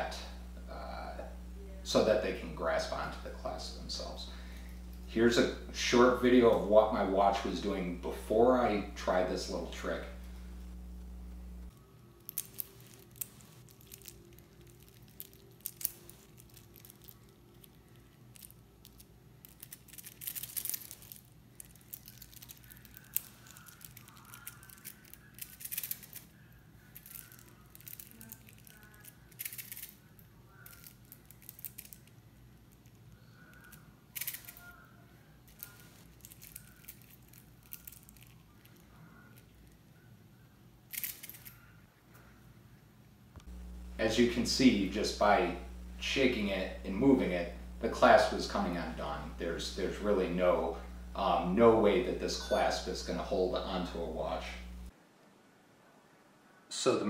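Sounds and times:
metal watch links clinking: 0:12.3 - 0:30.0, 0:30.6 - 0:32.1, 0:35.5 - 0:38.8.

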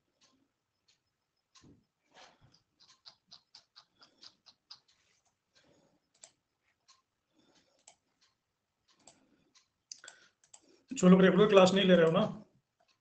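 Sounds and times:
computer keyboard typing: 0:06.1 - 0:06.4, 0:07.8 - 0:08.0, 0:09.0 - 0:09.2.

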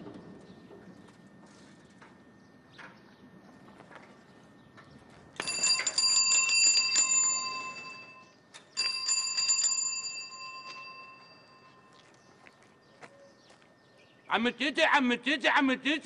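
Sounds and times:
bicycle bell ringing: 0:05.4 - 0:12.0.

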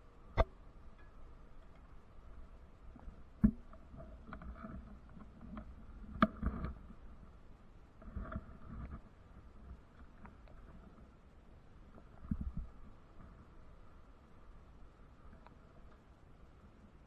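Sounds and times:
wind rumble on microphone: 0:02.4 - 0:15.9.

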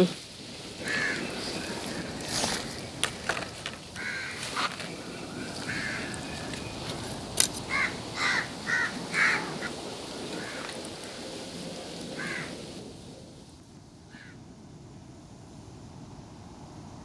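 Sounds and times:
crow cawing: 0:00.8 - 0:01.6, 0:02.4 - 0:06.4, 0:07.7 - 0:09.8, 0:10.4 - 0:11.2, 0:12.2 - 0:12.6, 0:14.1 - 0:14.4.

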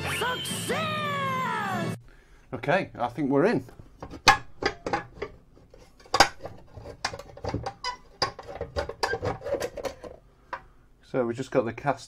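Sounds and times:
metal knocks clicks and rattles: 0:04.0 - 0:10.2.

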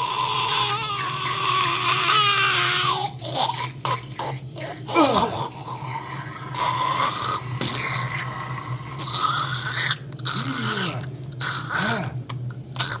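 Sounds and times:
dog whining: 0:00.0 - 0:07.4
low steady hum: 0:00.0 - 0:13.0.

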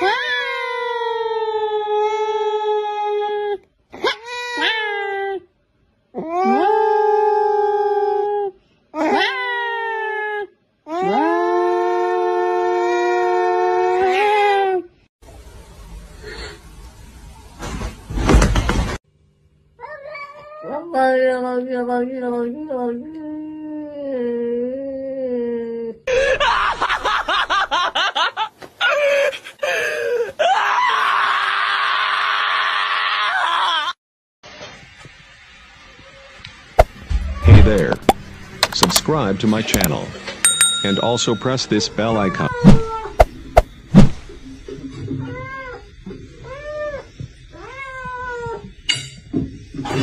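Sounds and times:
cat yowling: 0:19.8 - 0:20.8.

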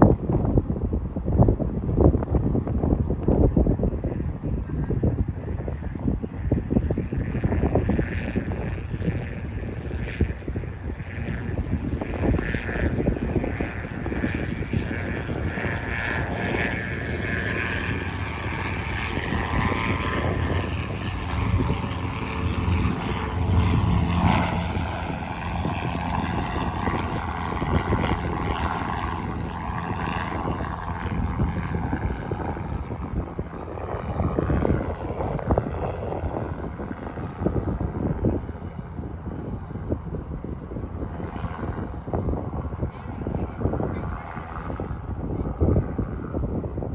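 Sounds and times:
propeller plane engines idling: 0:00.0 - 0:46.9.

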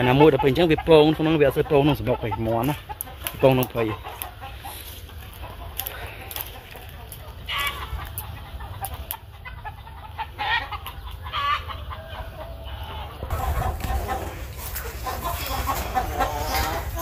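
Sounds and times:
chickens clucking: 0:00.0 - 0:17.0
steady low rumble: 0:13.3 - 0:16.2.

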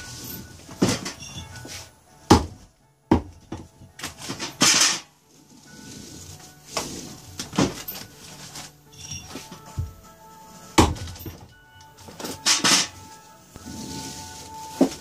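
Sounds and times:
hatchet chopping rope on wood: 0:02.3 - 0:03.6.

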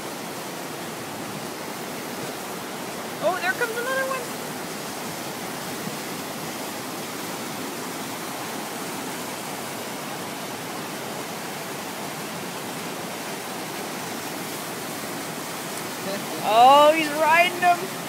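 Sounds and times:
rushing white water river: 0:00.0 - 0:18.0.

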